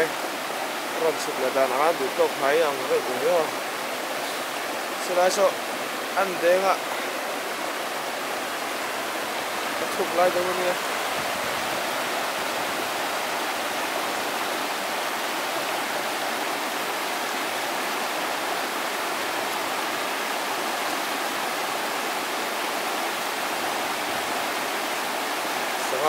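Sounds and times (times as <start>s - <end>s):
river rapids rushing: 0.0s - 26.0s.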